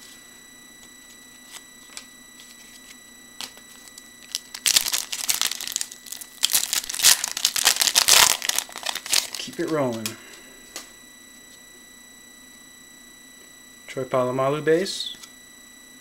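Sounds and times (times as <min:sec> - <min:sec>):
computer fan whine: 0:00.0 - 0:16.0
foil wrapper crinkling and tearing: 0:04.2 - 0:10.1.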